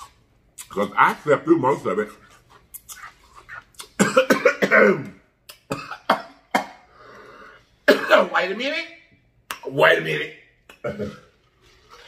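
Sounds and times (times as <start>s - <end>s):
wet mouth clicks and smacks: 2.5s - 4.0s
man coughing: 4.0s - 6.8s, 7.8s - 8.4s.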